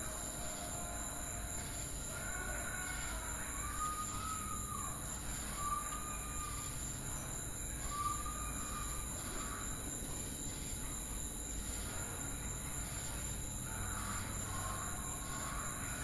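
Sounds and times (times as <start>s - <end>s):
short whistled calls: 3.0s - 9.7s.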